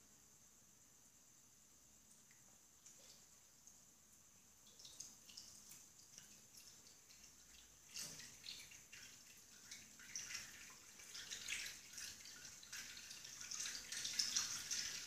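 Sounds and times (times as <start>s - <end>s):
water splashing and dripping: 4.5s - 15.0s
tap water running into sink: 4.7s - 15.0s.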